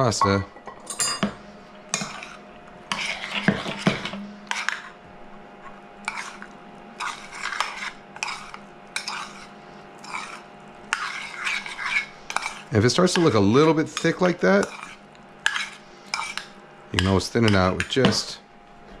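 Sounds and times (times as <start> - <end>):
metal spoon scraping a saucepan: 1.9 - 4.9, 6.1 - 18.0.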